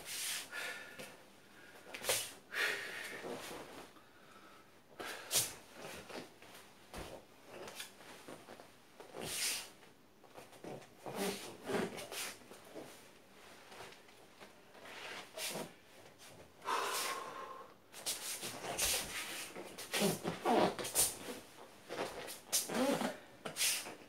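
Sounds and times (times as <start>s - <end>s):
man's forceful hissing exhalations: 16.6s - 17.7s.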